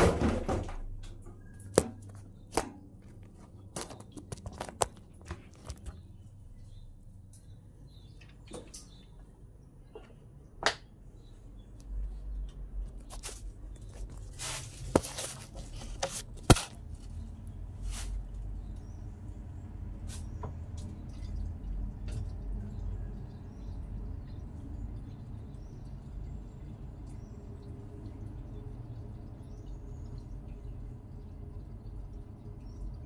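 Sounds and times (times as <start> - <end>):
water dripping: 19.8 - 33.0.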